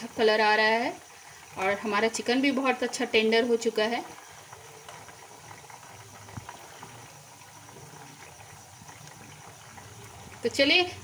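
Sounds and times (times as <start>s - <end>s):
chicken deep-frying in oil: 0.0s - 11.0s.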